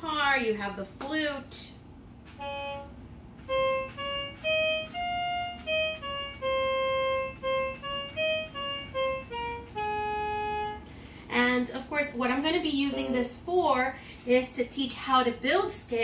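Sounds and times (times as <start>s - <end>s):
electronic flute notes: 2.3s - 11.0s.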